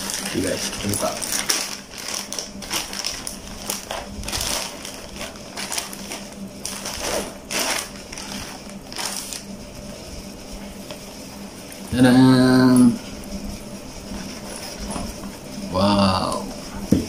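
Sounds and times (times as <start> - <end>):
plastic bag crinkling: 0.0 - 9.5.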